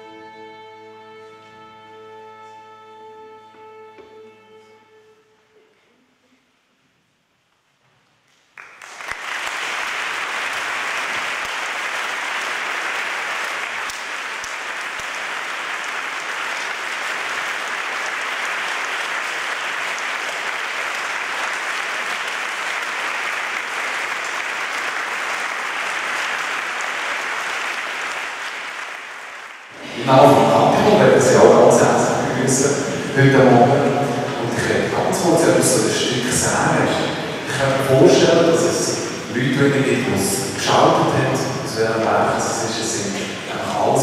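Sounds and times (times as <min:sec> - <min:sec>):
large audience applauding: 0:08.5 - 0:44.0.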